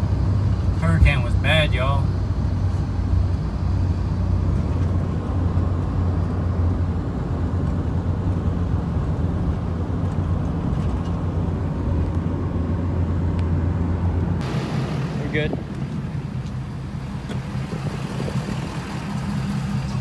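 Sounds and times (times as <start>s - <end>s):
diesel engine drone in cab: 0.0s - 20.0s
tyre road noise: 0.0s - 20.0s.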